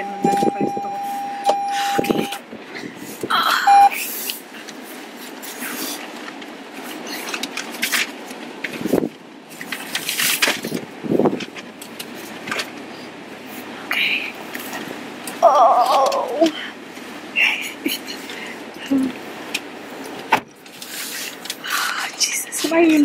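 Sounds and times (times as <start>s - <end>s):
short electronic beep: 0.0s - 2.4s, 3.7s - 3.9s.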